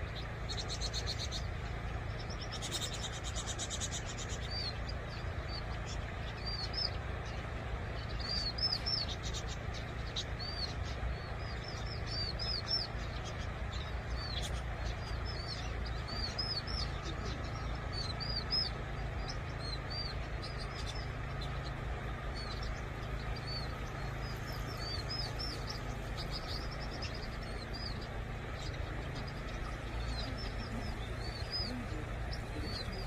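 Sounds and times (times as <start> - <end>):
birds chirping: 0.0 - 33.0
low steady rumble: 0.0 - 33.0.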